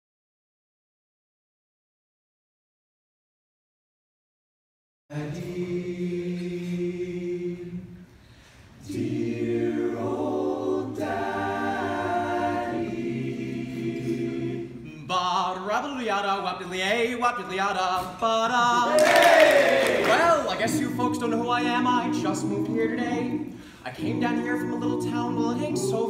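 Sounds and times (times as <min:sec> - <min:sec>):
male group singing harmony: 0:05.1 - 0:08.2, 0:08.8 - 0:15.1, 0:18.0 - 0:26.0.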